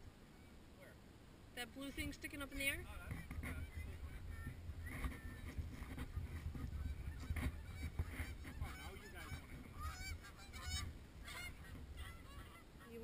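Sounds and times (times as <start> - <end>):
wind on microphone: 2.6 - 13.0
geese honking: 2.9 - 13.0.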